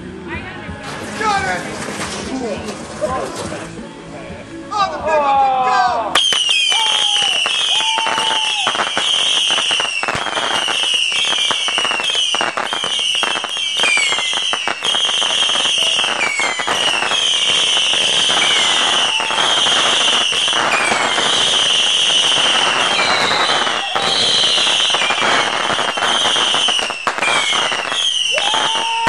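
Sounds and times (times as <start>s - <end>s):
whistling firework shots: 6.2s - 29.0s.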